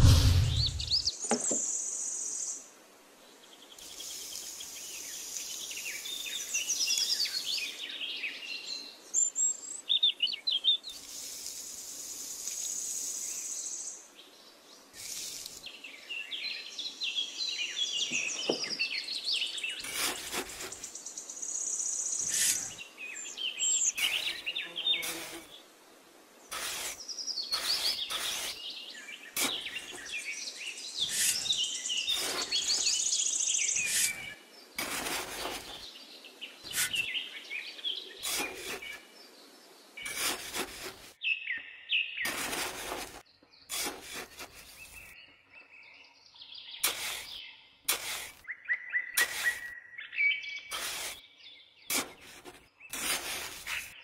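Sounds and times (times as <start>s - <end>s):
small birds chirping and trilling: 0.0s - 54.0s
steady high hiss: 1.6s - 7.8s, 10.8s - 14.1s, 14.8s - 16.3s.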